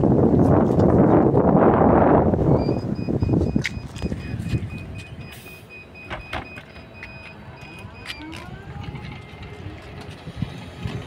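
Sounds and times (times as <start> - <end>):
bus door warning beeping: 2.5 - 10.1
doors closing clacks: 2.6 - 11.0.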